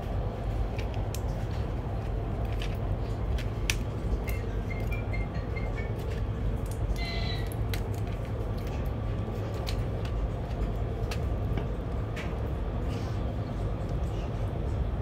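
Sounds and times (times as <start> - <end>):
train rumbling inside carriage: 0.0 - 15.0.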